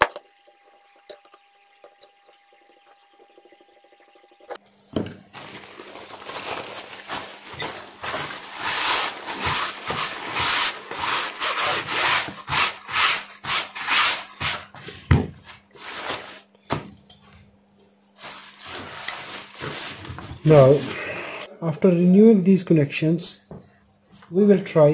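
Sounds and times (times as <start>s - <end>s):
paper tissue wiping a surface: 7.6s - 14.6s, 18.2s - 21.5s.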